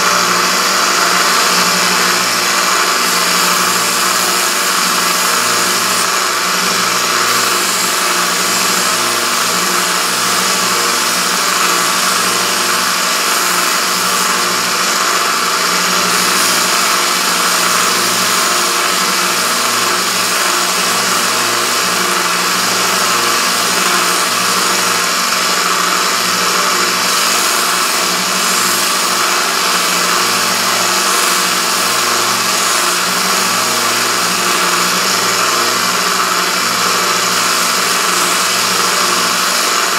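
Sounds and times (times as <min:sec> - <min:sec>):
belt sander grinding steel: 0:00.0 - 0:39.9.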